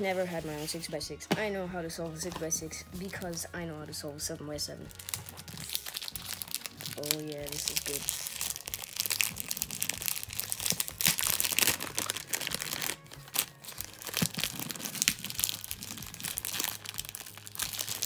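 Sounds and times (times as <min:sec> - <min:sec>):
plastic wrapping crinkling: 0:04.8 - 0:18.0.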